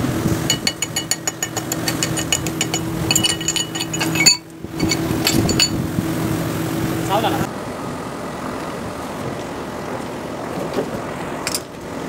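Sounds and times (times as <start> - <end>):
steady machine hum: 0.0 - 8.2
hammer tapping on metal: 0.5 - 5.8.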